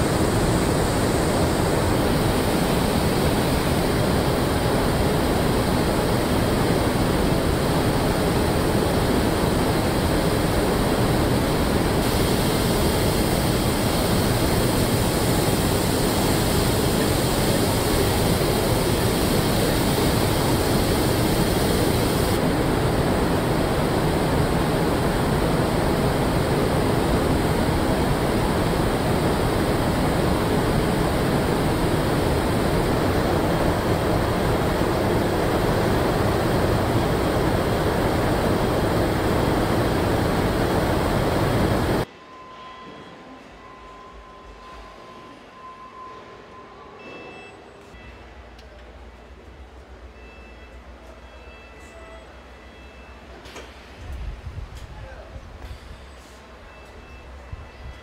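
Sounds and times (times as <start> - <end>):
paint booth air rushing: 0.0 - 42.1.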